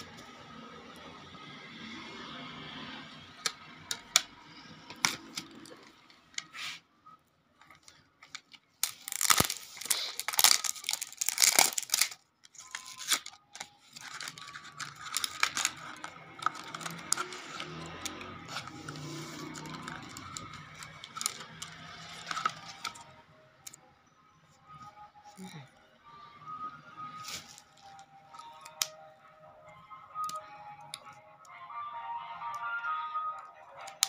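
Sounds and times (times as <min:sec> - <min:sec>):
boxes clicking: 0:07.6 - 0:23.7
plastic wrapping crinkling and tearing: 0:07.7 - 0:23.2.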